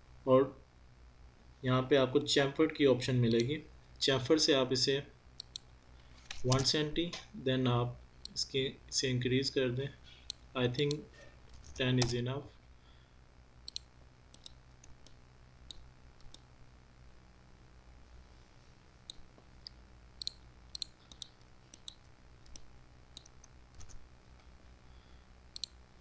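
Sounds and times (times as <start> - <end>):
computer mouse buttons clicking: 5.4 - 5.7, 13.7 - 16.5, 20.2 - 24.0, 25.5 - 25.8.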